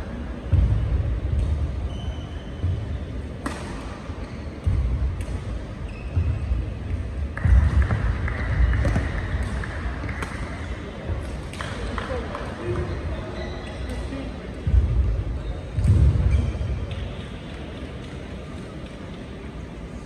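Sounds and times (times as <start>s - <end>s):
shoes squeaking on court: 1.4s - 3.4s, 4.2s - 6.7s, 13.2s - 14.2s
racket hitting shuttlecock: 3.4s - 5.6s, 8.6s - 10.7s.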